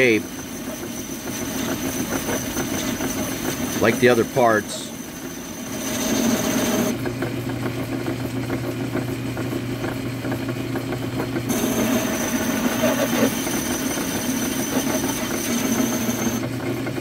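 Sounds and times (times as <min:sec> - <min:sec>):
metal lathe humming: 0:00.0 - 0:07.7, 0:11.5 - 0:16.6
thin high whine: 0:02.8 - 0:07.0, 0:11.5 - 0:16.4.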